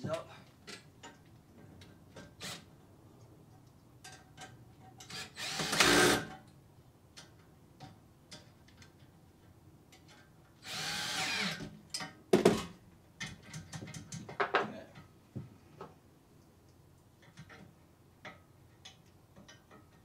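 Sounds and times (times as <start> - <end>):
cordless drill running: 5.1 - 6.3, 10.6 - 11.6.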